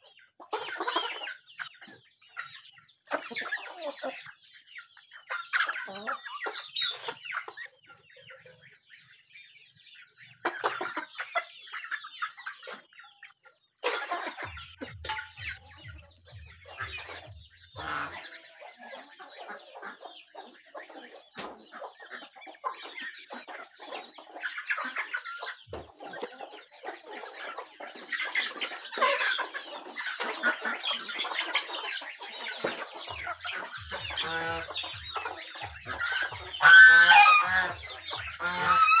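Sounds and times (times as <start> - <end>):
chickens clucking: 0.0 - 39.0.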